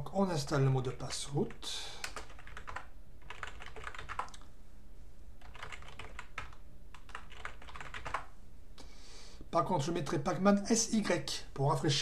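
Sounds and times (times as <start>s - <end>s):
faint low hum: 0.0s - 12.0s
computer keyboard typing: 2.0s - 4.4s, 5.4s - 8.3s.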